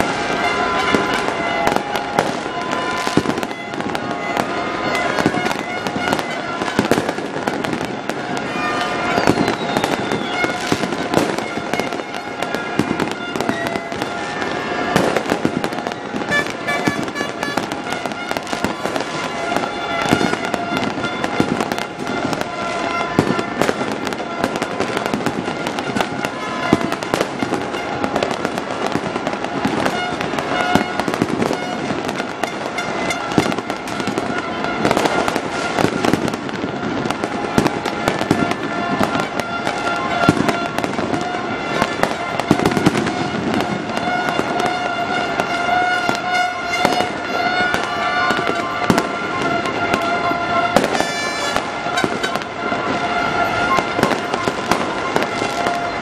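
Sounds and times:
fireworks bangs and crackles: 0.0 - 56.0.

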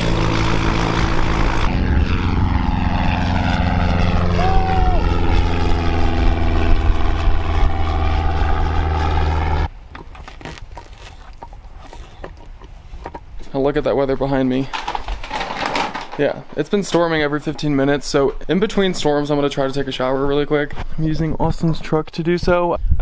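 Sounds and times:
light plane engine drone: 0.0 - 9.7.

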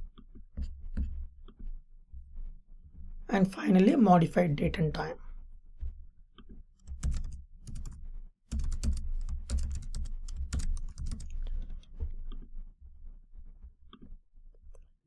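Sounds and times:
keyboard typing: 6.4 - 12.5.

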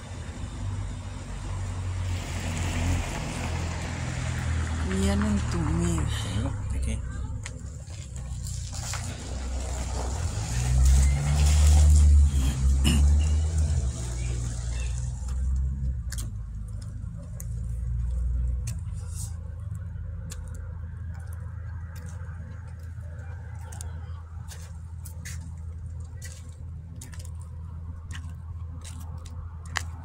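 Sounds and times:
steady low rumble: 12.2 - 30.0
footsteps crunching on snow: 20.3 - 30.0.

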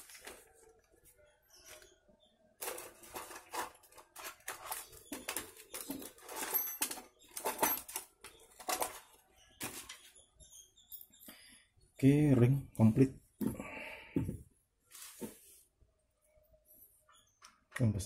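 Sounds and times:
small metal parts clicking and rattling: 2.6 - 9.2.

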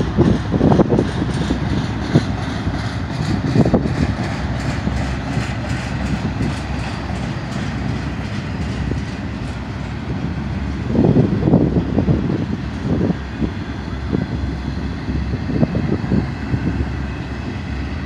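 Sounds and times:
freight train rumbling past: 0.0 - 18.0
train clattering: 0.0 - 18.0.

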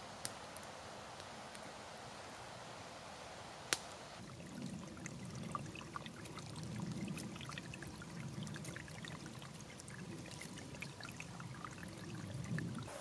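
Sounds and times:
tiny water splashes: 4.2 - 12.9
stream trickling over stones: 4.2 - 13.0.

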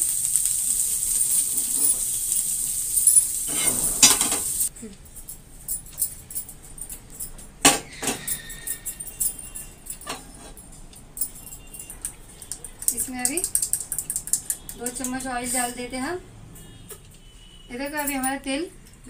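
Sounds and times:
vegetables sizzling in a pan: 0.0 - 4.7.

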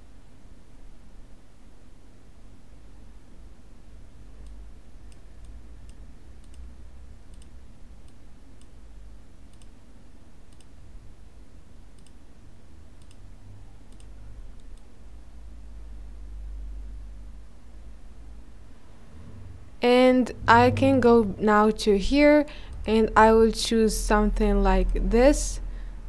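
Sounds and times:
steady low hum: 0.0 - 26.0
computer mouse clicking: 4.4 - 6.7, 7.3 - 8.8, 9.5 - 9.8, 10.5 - 10.8, 11.9 - 12.2, 13.0 - 13.2, 13.9 - 14.9.

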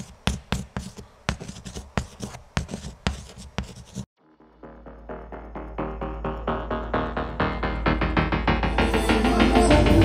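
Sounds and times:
pen scratching while writing: 0.0 - 4.1.

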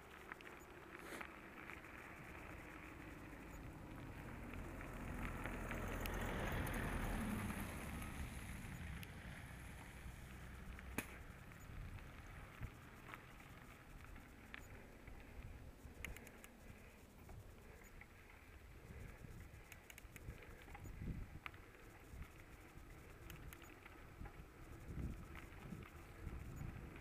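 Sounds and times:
small clicks: 0.0 - 27.0
van passing: 1.0 - 13.9.

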